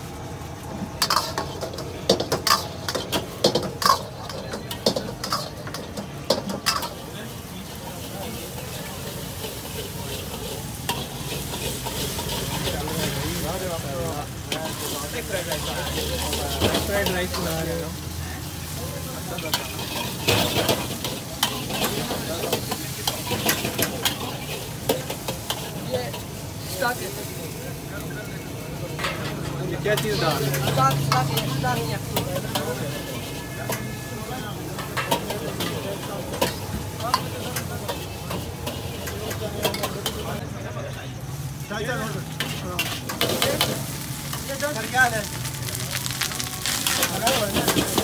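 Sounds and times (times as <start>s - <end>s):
chicken sizzling in a pan: 0.0s - 48.0s
metal spatula scraping a wok: 0.9s - 27.2s, 28.9s - 40.4s, 45.5s - 48.0s
metal spatula clanking on pan: 1.0s - 7.1s.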